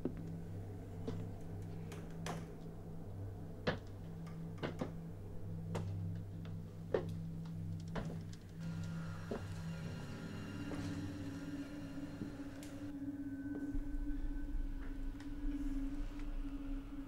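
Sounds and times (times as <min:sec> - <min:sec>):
low steady hum: 0:00.0 - 0:17.0
slow soft footsteps: 0:00.0 - 0:17.0.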